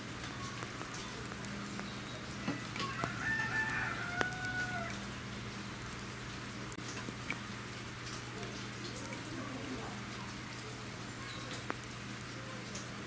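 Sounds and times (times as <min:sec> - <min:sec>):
faint clicks: 0:10.2 - 0:13.0.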